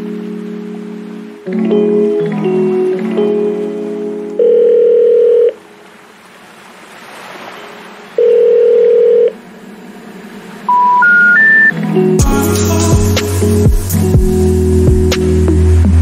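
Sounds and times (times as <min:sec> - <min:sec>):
long low telephone beeps: 0:04.4 - 0:05.6, 0:08.2 - 0:09.4, 0:10.7 - 0:11.8
short rising telephone beeps: 0:08.2 - 0:09.3, 0:10.7 - 0:11.7.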